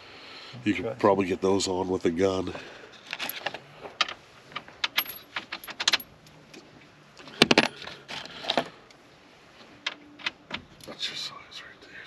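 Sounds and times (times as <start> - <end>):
metal hardware clinking: 4.8 - 6.1.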